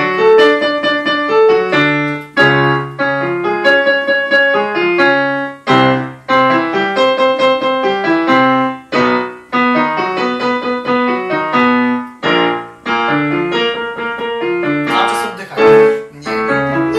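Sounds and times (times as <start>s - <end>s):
digital piano melody over chords: 0.0s - 16.9s.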